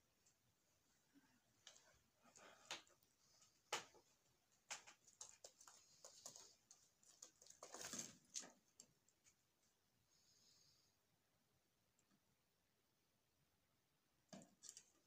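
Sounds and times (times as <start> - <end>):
doves tapping and scratching: 1.7 - 9.0.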